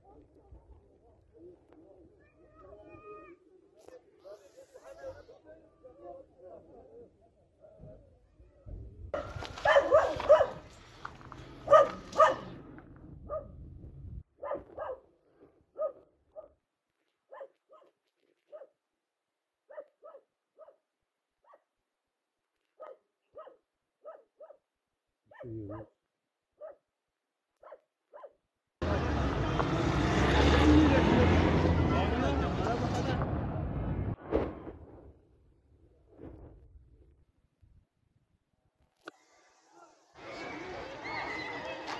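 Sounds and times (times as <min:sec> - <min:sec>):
dog barking: 0:09.2 - 0:10.6, 0:11.6 - 0:12.6, 0:13.3 - 0:13.6, 0:14.4 - 0:15.1, 0:15.7 - 0:16.6, 0:17.3 - 0:18.8, 0:19.7 - 0:20.8, 0:21.4 - 0:21.7, 0:22.8 - 0:24.6, 0:25.3 - 0:26.0, 0:26.6 - 0:26.9, 0:27.6 - 0:28.4.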